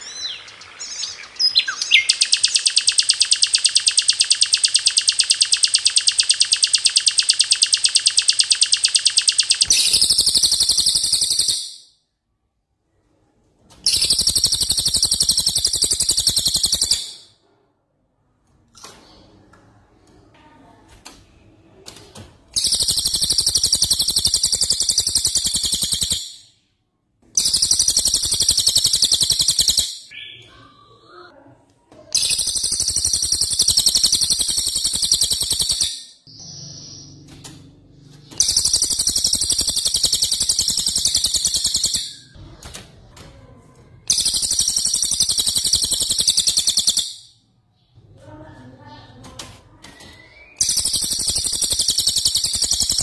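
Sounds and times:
songbird rattling trill: 0.1 - 11.8, 13.9 - 17.2, 22.6 - 26.4, 27.4 - 30.1, 32.2 - 37.2, 38.4 - 42.4, 44.1 - 47.3, 50.6 - 53.0.

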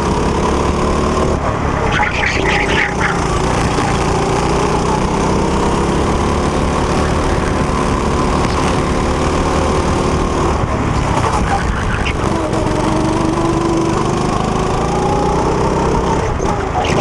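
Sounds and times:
go-kart engine running hard: 0.0 - 17.0.

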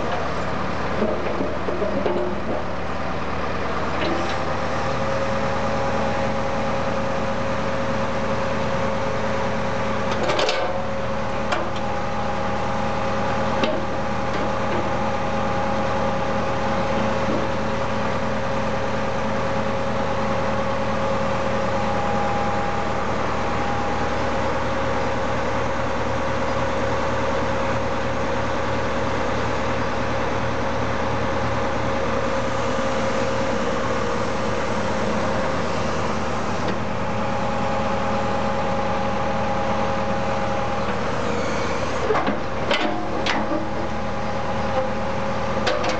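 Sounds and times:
tractor engine running: 0.0 - 45.9
hydraulic whine: 32.1 - 45.9.

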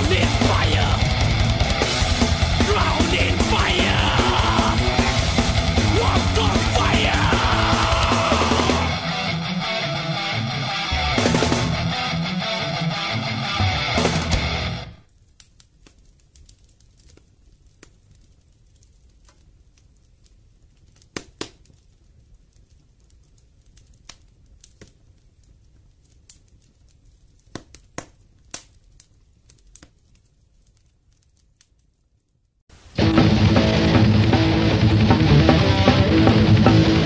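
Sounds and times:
low hum: 0.0 - 10.2
crackle of sharp clicks: 14.1 - 32.5.

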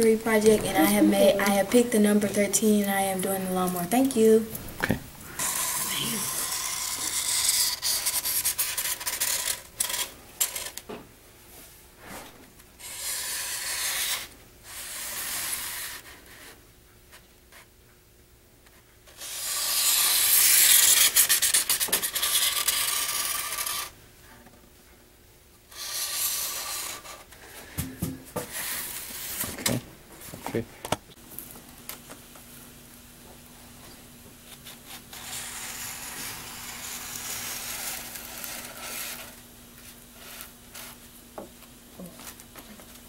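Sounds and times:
marker rubbing on foam board: 5.4 - 10.0, 12.8 - 16.5, 19.2 - 23.9, 25.7 - 27.2.

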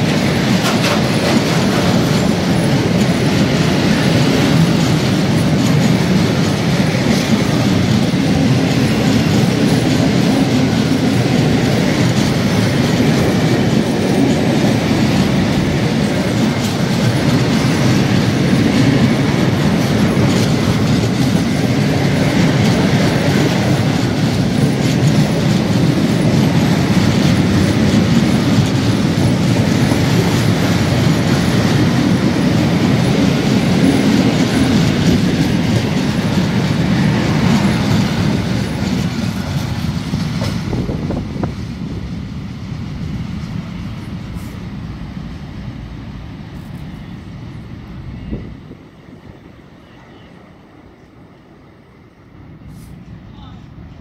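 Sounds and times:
wheels clacking over rail joints: 0.0 - 41.6
freight train wheels rumbling: 0.0 - 54.0.

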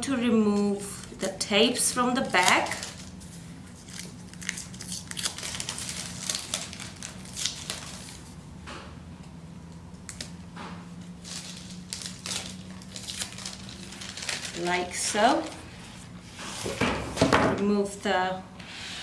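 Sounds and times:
paper rustling: 2.3 - 8.4, 11.2 - 16.6
sticky tape ripping off paper: 3.8 - 8.2.

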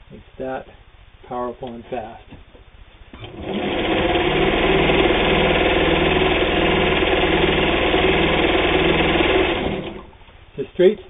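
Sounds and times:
sewing machine motor hum: 3.1 - 10.2.

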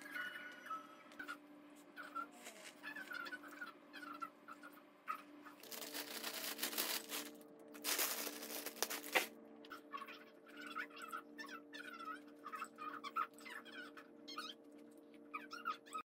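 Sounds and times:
plastic bag crinkling: 5.6 - 9.3.

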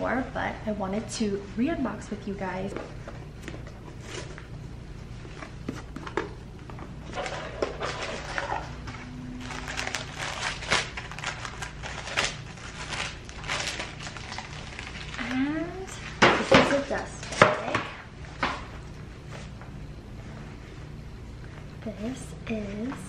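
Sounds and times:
tissue paper rustling: 7.1 - 15.4.

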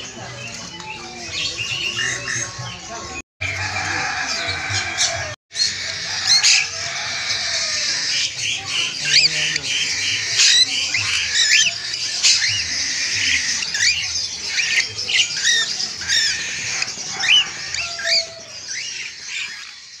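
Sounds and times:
chatter of caged birds: 0.0 - 20.0.

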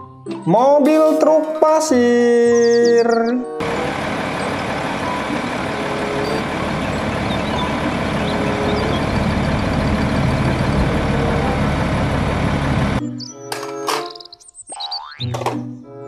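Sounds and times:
truck diesel engine running: 3.6 - 13.0.

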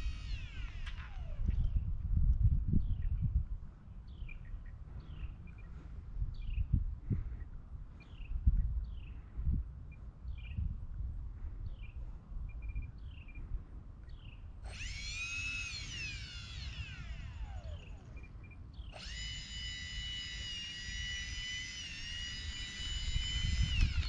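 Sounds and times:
electric ducted fans whining: 0.0 - 8.3, 13.1 - 24.0.

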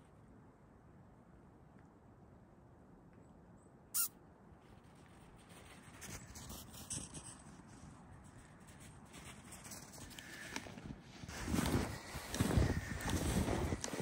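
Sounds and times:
footsteps in snow: 4.8 - 14.0.

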